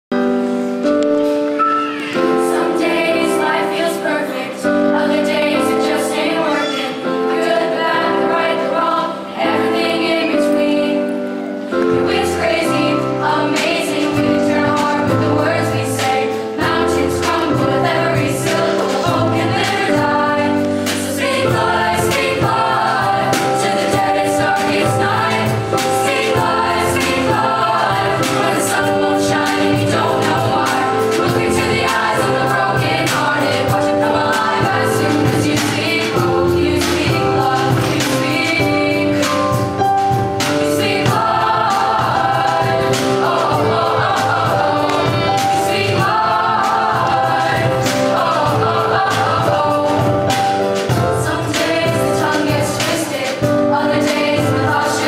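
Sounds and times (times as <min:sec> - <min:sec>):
keyboard accompaniment: 0:00.1 - 0:55.0
youth choir singing: 0:01.3 - 0:55.0
drums: 0:11.8 - 0:55.0.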